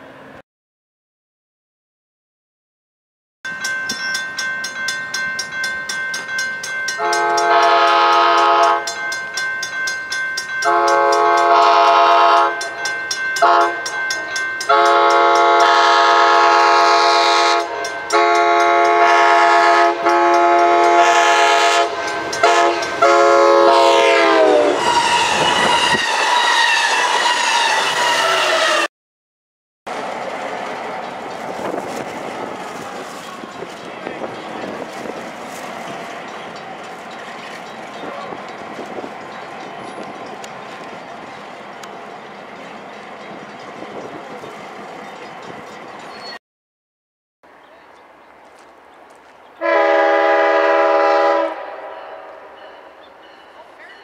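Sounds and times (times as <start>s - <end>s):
bell ringing rapidly: 3.5s - 11.5s, 12.6s - 15.6s
locomotive air horn: 7.0s - 8.9s, 10.6s - 12.8s, 13.4s - 13.9s, 14.7s - 28.9s, 49.6s - 52.6s
wheel and rail clatter: 29.9s - 46.4s.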